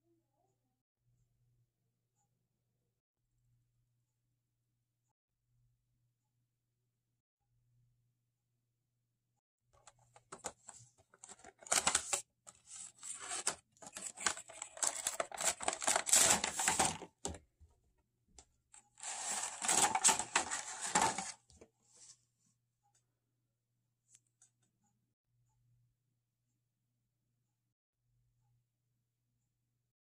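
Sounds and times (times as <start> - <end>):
cardboard and plastic rustling: 10.2 - 17.4, 19.0 - 21.7.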